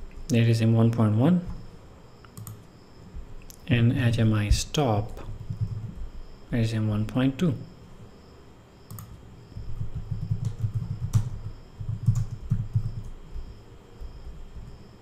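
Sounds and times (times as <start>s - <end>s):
computer keyboard typing: 2.4s - 2.6s, 5.2s - 5.9s, 8.9s - 13.2s.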